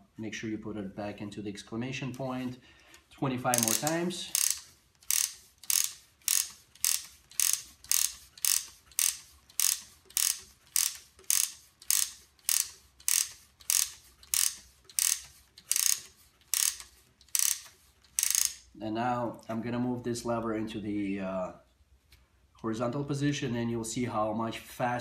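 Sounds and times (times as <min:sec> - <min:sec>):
wooden ratchet clicking: 0:02.8 - 0:18.7.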